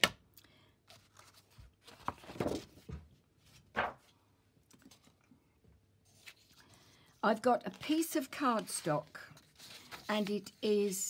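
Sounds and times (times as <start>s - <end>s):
cardstock rustling and scraping: 6.1s - 11.0s.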